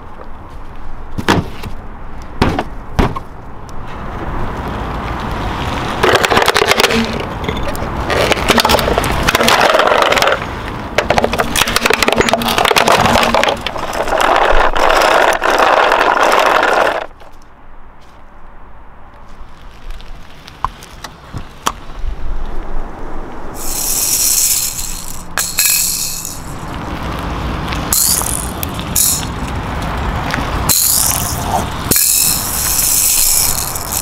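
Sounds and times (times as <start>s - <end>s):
plastic toy crunching under tyre: 5.9s - 17.4s, 27.9s - 29.6s, 30.6s - 34.0s.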